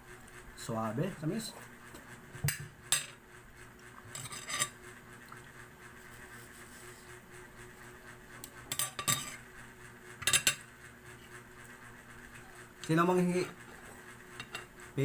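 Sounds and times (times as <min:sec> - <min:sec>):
spoon scraping and clinking on dish: 0:04.2 - 0:04.8, 0:08.8 - 0:09.4.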